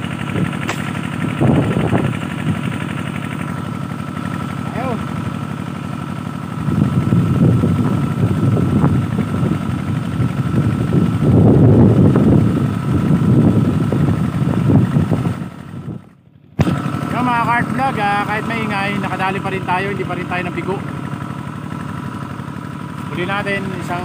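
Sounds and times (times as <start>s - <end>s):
wind buffeting microphone: 0.2s - 2.8s, 6.6s - 16.1s.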